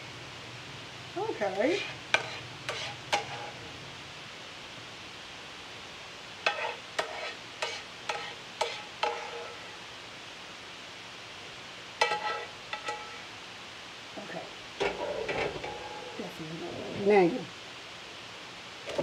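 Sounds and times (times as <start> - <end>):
spoon knocking on frying pan: 6.5 - 9.6, 12.0 - 13.3.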